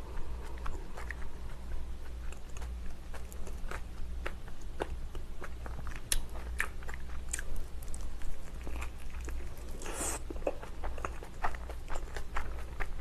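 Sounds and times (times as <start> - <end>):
biting and chewing: 0.0 - 13.0.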